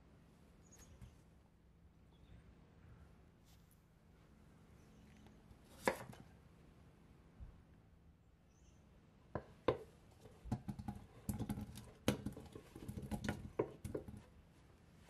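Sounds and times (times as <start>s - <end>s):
potato chunks thudding into pot: 9.7s - 14.2s.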